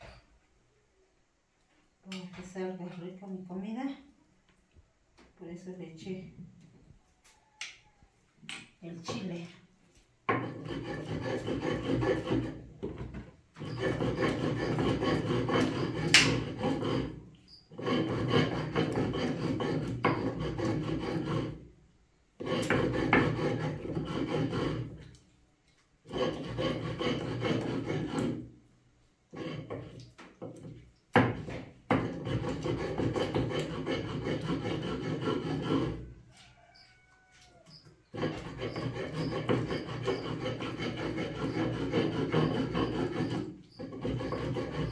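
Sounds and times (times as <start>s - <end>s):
grinding stone rasping: 10.3s - 12.6s, 13.6s - 21.6s, 22.4s - 25.1s, 26.1s - 28.5s, 29.3s - 30.1s, 31.2s - 36.1s, 38.1s - 44.9s.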